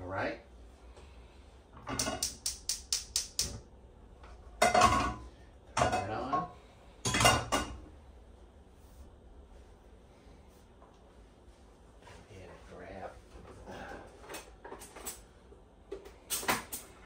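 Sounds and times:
sharp metal clicks: 2.0 - 3.6
pots and pans clattering: 4.6 - 7.8.

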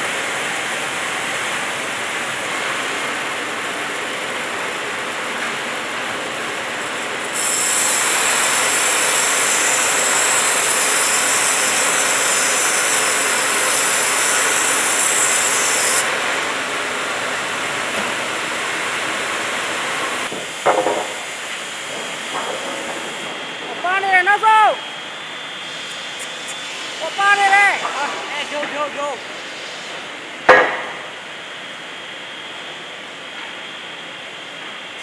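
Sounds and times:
sawmill machinery noise: 0.0 - 35.0
band saw cutting wood: 7.3 - 16.5.

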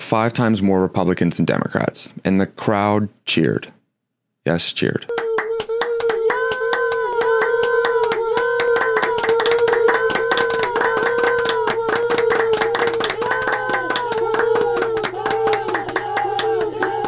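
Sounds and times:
fast handclapping: 5.1 - 17.0
man whooping: 5.1 - 17.0.

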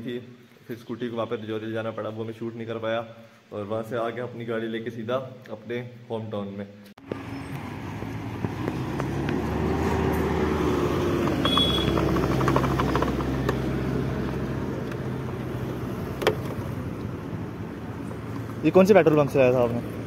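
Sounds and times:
car engine hum and road noise: 7.0 - 20.0
short high beep: 11.4 - 12.0.

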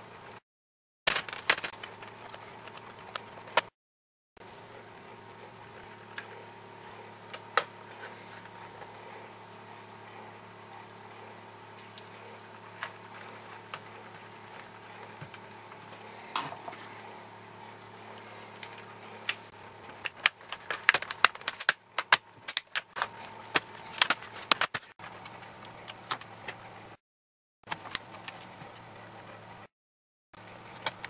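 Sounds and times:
steady low hum: 4.4 - 27.0
plastic laptop casing clicking: 20.0 - 22.9.

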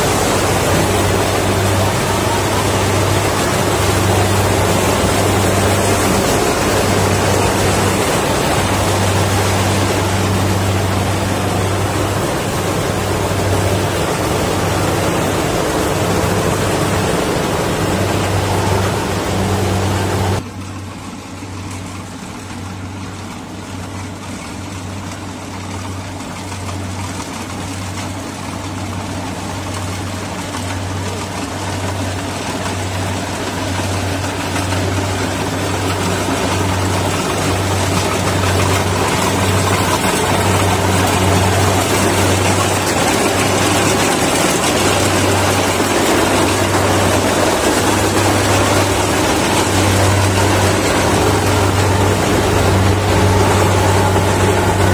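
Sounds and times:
combine harvester running: 0.0 - 54.9.

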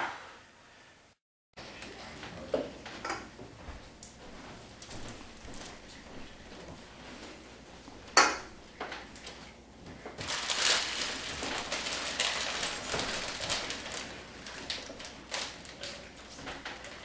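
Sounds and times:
rustling of food wrappers: 10.1 - 17.0.

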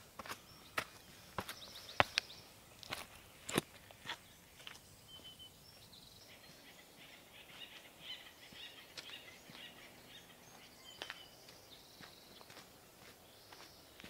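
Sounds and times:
footfalls on dirt trail: 0.0 - 4.8
faint birdsong chirping: 0.0 - 14.0.

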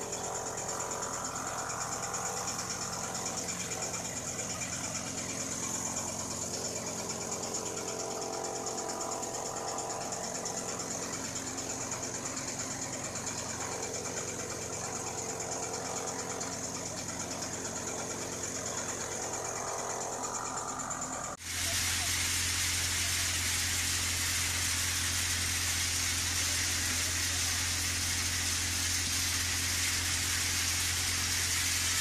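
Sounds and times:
threshing machine droning: 0.0 - 32.0
hiss of rushing air and chaff: 21.4 - 32.0.

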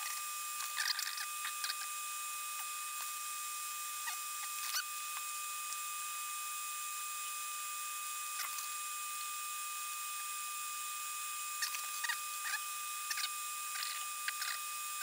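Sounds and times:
faint squeaks and ticks: 0.0 - 2.0, 4.0 - 5.3, 11.6 - 14.7
small fan hissing and whining: 0.0 - 15.0.

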